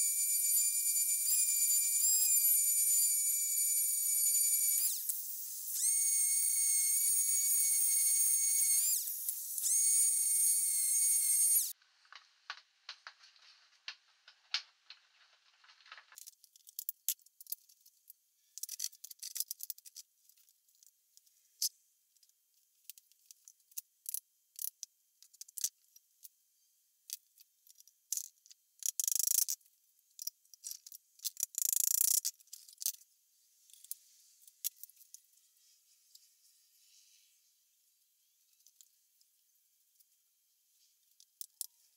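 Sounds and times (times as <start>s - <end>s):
rustling: 11.8s - 16.2s
clicks and knocks of handling wood: 11.8s - 18.0s.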